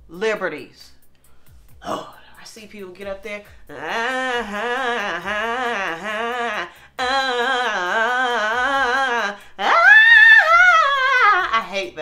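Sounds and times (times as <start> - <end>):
woman singing vocal runs: 3.6 - 12.0.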